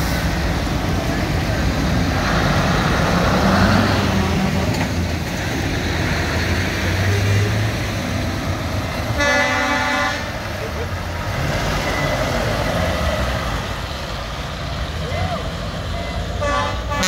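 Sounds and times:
lorry diesel engines: 0:00.0 - 0:17.0
truck air horn blast: 0:09.1 - 0:10.4, 0:16.3 - 0:17.0.

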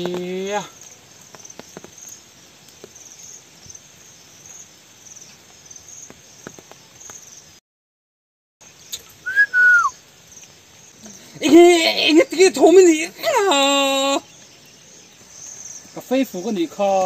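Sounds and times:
insects chirping: 0:00.0 - 0:07.6, 0:08.6 - 0:17.0
loud whistle-like tone: 0:09.2 - 0:10.0.

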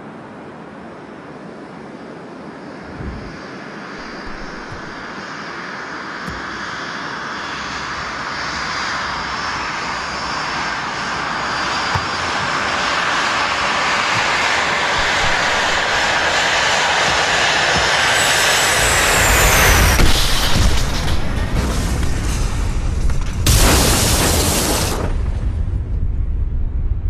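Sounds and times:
airliner engine roar: 0:00.0 - 0:27.0.

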